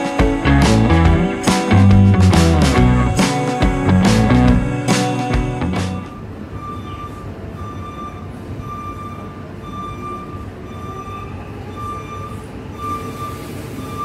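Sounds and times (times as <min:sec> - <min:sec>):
short electronic beep: 0:05.8 - 0:14.0.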